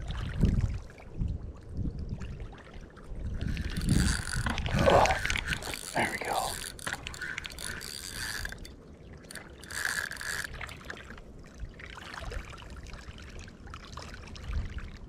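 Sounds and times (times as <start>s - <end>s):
fishing reel gears whirring: 3.3s - 11.2s
reel whine: 3.3s - 11.2s.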